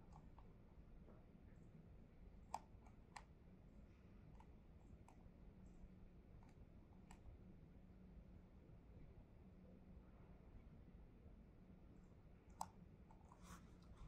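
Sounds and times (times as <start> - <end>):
low room hum: 0.0 - 14.0.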